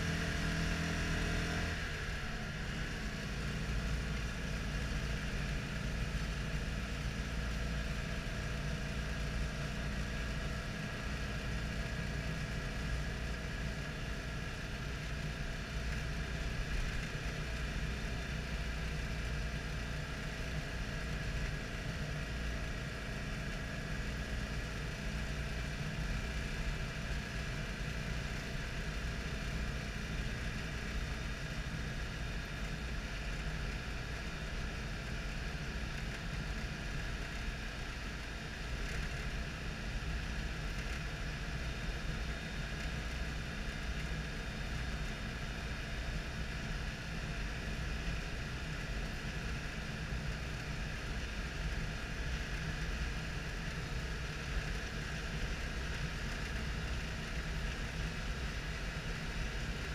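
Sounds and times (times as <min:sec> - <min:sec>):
road noise: 0:00.0 - 0:05.9
car engine running: 0:00.0 - 0:59.9.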